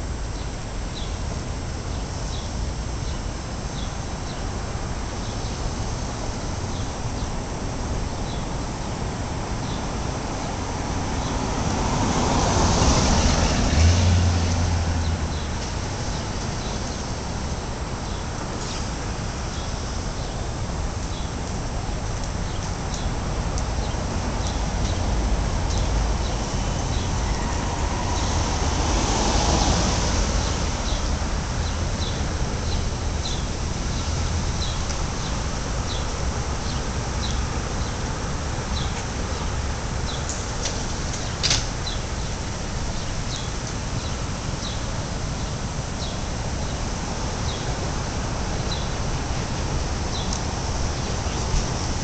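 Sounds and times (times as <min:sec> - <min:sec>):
city street rumble: 0:00.0 - 0:52.0
small birds chirping: 0:50.1 - 0:50.4.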